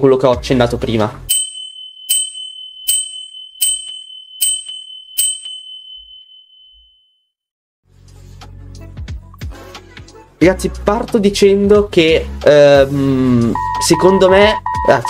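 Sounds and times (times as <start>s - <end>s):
countdown tick with high ding: 1.3s - 6.2s.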